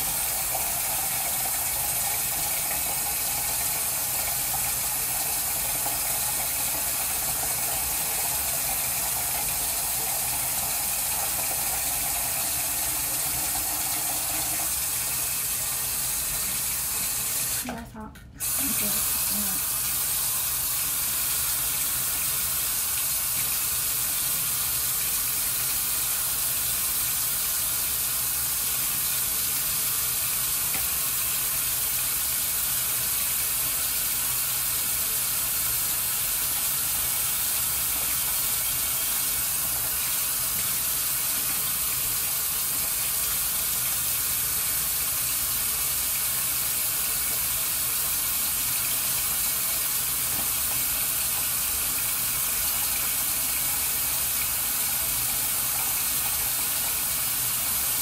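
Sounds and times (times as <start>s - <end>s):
tap running into sink: 30.6s - 31.0s, 37.8s - 38.4s, 39.6s - 43.2s, 47.1s - 57.5s.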